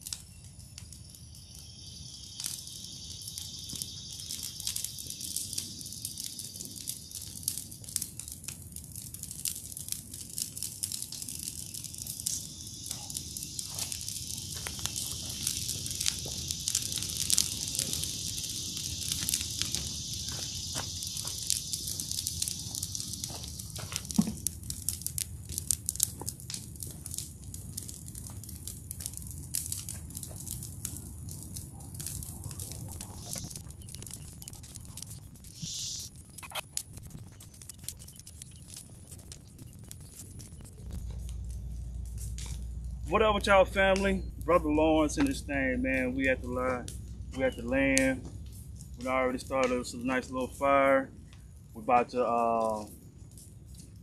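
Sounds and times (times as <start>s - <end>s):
brush fire crackling: 0.0s - 54.0s
high-pitched hiss: 0.1s - 7.9s, 11.1s - 24.5s, 32.5s - 36.6s, 40.5s - 53.0s
branches popping and snapping: 7.6s - 35.6s, 36.2s - 45.4s.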